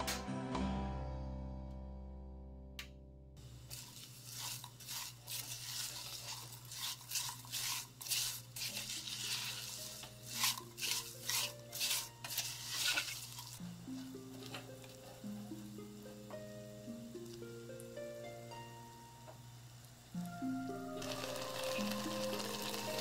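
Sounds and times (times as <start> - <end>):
spatula scraping a saucepan: 3.7 - 15.2.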